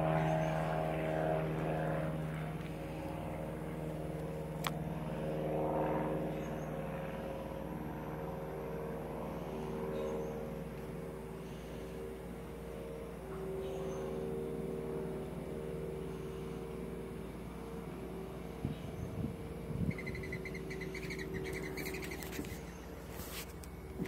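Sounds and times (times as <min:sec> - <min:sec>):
low mechanical hum: 0:00.0 - 0:24.0
bird chirping rapidly: 0:19.9 - 0:22.9.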